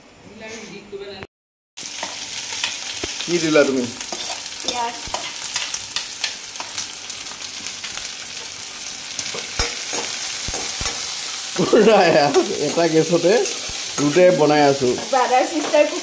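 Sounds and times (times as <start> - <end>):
onions sizzling in hot oil: 1.8 - 16.0.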